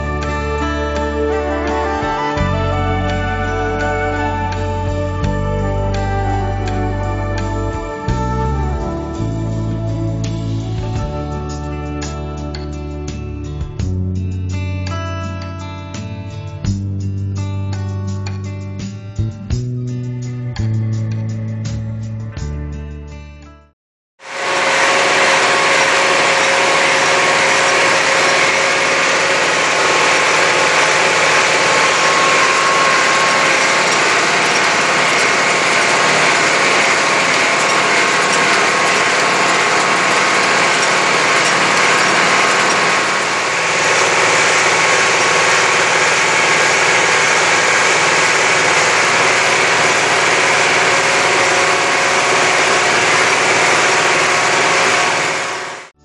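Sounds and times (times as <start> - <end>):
tractor diesel engine running: 0.0 - 10.8, 24.2 - 56.0.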